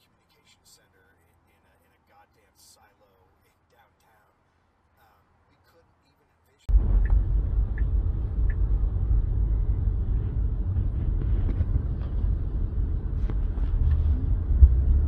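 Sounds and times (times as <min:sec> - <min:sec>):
car cabin road and wind rumble: 0:06.7 - 0:15.0.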